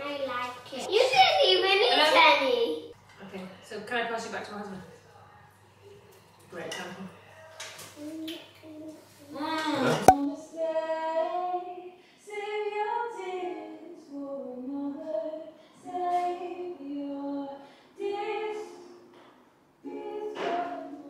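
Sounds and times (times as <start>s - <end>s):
girl singing behind closed door: 8.0s - 19.2s, 19.8s - 21.0s.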